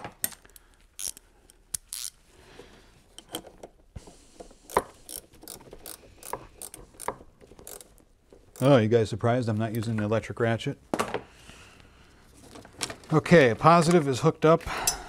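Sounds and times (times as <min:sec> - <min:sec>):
hand ratchet clicking: 0:00.2 - 0:02.2, 0:04.7 - 0:08.7.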